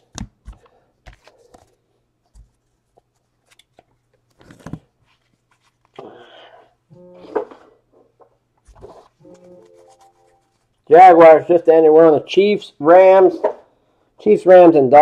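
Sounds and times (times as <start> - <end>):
trading cards tapping and rustling: 0.0 - 6.1.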